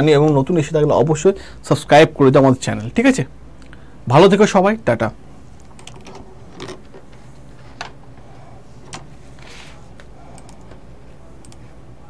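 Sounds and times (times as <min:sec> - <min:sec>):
low room hum: 0:00.0 - 0:12.0
computer keys clicking: 0:05.6 - 0:06.2, 0:10.3 - 0:10.8, 0:11.4 - 0:11.6
soft rustle: 0:07.1 - 0:10.1.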